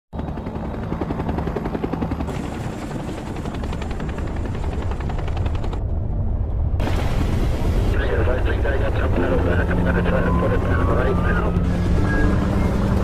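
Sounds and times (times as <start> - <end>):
helicopter rotor blades chopping: 0.2 - 6.1, 7.9 - 13.0
deep engine rumble: 3.2 - 13.0.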